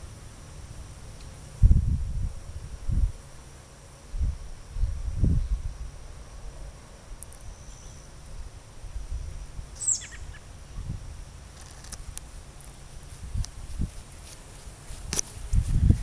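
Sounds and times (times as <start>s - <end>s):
high insect whine: 0.0s - 16.0s
microphone rumble: 1.6s - 3.2s, 15.0s - 16.0s
bird chirp: 7.4s - 8.2s, 9.2s - 10.5s.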